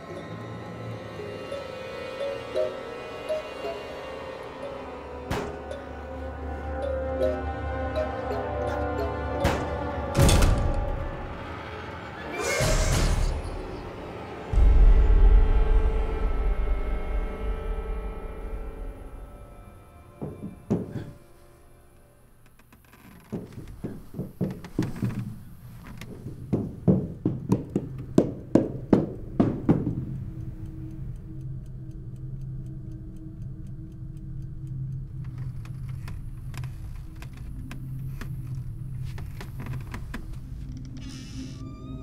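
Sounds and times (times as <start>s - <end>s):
low steady drone: 13.3s - 22.4s
sharp knocks: 26.6s - 30.2s.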